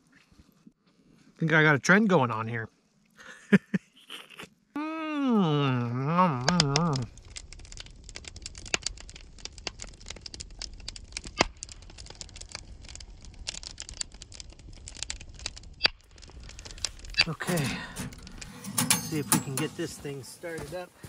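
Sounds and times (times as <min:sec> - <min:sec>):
campfire crackling and popping: 0:05.9 - 0:20.8
low steady rumble: 0:06.8 - 0:19.9.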